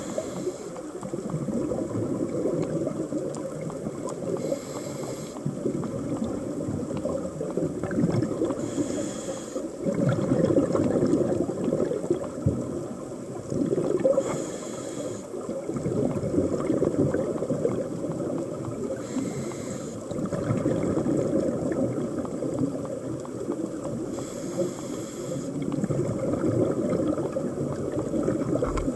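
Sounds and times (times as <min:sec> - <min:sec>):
regulator inhale hiss: 0:00.0 - 0:01.0, 0:04.3 - 0:05.5, 0:08.5 - 0:09.8, 0:14.0 - 0:15.5, 0:18.9 - 0:20.1, 0:24.1 - 0:25.6
bubbling exhaust underwater: 0:00.0 - 0:28.9.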